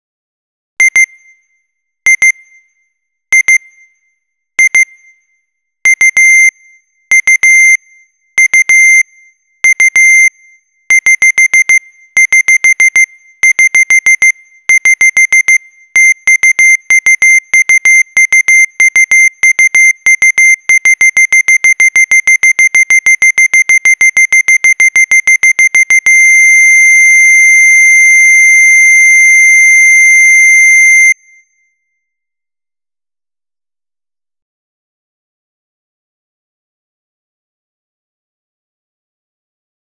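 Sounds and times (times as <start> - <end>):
digital alarm beeping: 7.1 - 10.3, 10.9 - 31.5.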